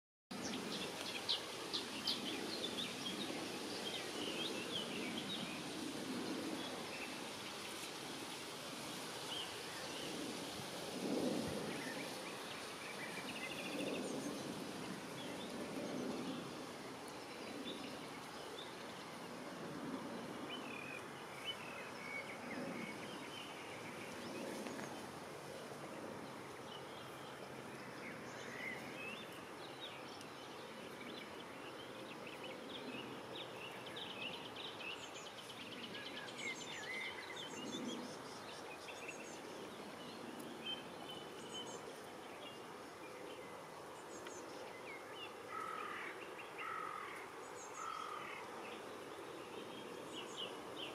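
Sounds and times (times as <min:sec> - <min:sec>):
river water flowing: 0:00.4 - 0:13.7.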